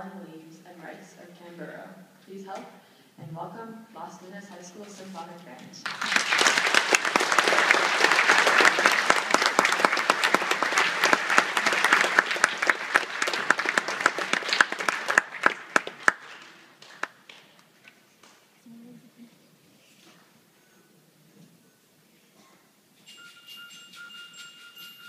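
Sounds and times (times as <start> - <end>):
audience applauding: 5.8 - 17.6.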